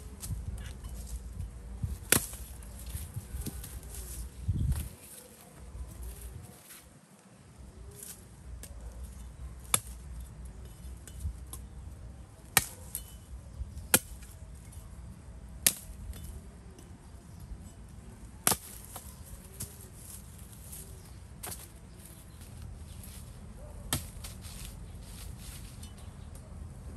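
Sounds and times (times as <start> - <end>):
blade chopping firewood: 1.8 - 3.8, 9.6 - 10.3, 12.4 - 14.8, 15.6 - 16.4, 18.4 - 20.8, 23.9 - 24.7.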